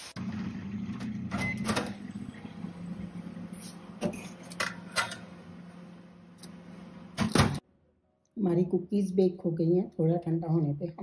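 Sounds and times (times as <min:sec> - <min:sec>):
oven humming: 0:00.0 - 0:07.6
oven door opening: 0:01.0 - 0:02.1, 0:07.1 - 0:07.6
metal tray clanking and scraping: 0:04.0 - 0:05.3.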